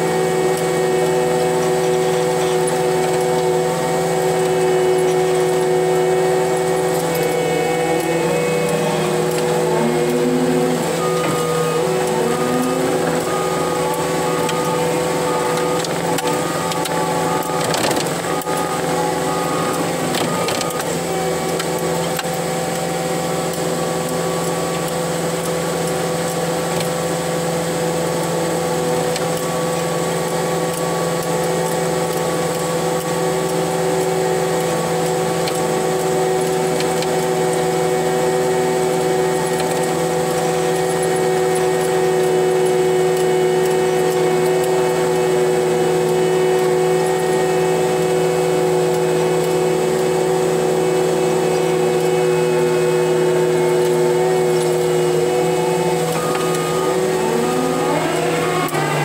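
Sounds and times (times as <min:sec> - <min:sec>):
steady hum: 0:00.0 - 0:26.0
diesel engine running: 0:00.0 - 0:59.0
dozer blade pushing dirt: 0:00.0 - 0:59.0.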